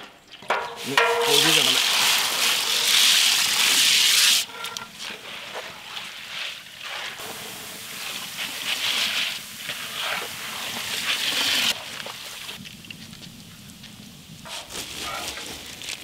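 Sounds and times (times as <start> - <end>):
metal skimmer stirring: 0.5 - 3.6
oil sizzling and bubbling: 0.5 - 16.0.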